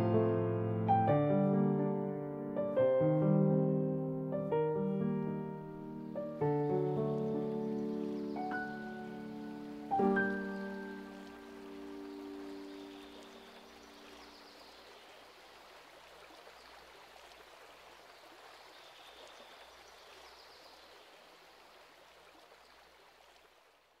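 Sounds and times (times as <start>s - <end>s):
piano chord: 0.0s - 13.7s
stream running: 5.0s - 24.0s.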